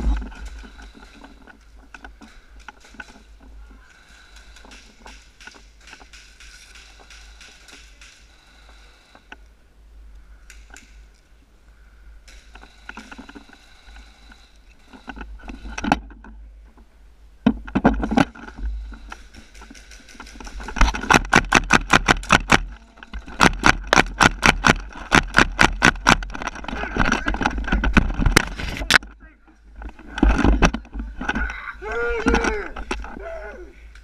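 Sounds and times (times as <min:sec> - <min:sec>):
gun clicks: 0:00.4 - 0:09.5, 0:10.4 - 0:11.2.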